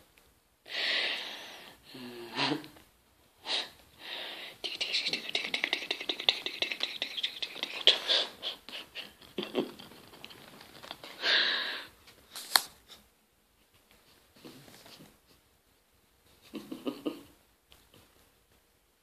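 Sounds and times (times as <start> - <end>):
squirrel claws scratching and clicking: 4.7 - 8.0, 9.2 - 11.2
fabric rustling: 9.8 - 11.2.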